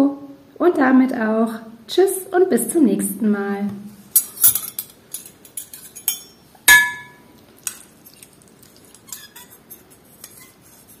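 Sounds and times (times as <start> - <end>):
fork and spoon clinking: 4.2 - 10.6.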